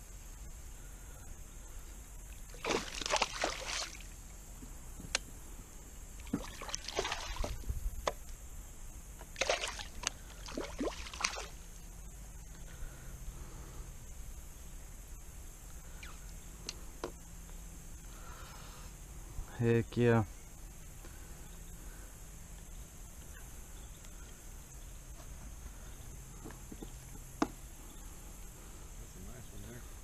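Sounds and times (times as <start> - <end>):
fish splashing at water surface: 2.5 - 4.1, 6.2 - 7.6, 9.4 - 11.6.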